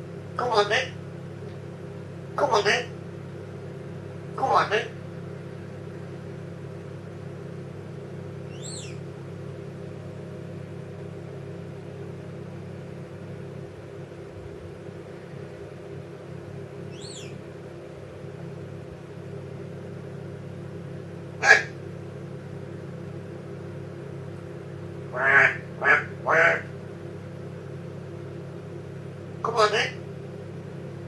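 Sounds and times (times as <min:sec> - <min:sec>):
low room hum: 0:00.0 - 0:31.0
parrot chirping: 0:08.5 - 0:09.0, 0:16.9 - 0:17.4, 0:21.4 - 0:21.7.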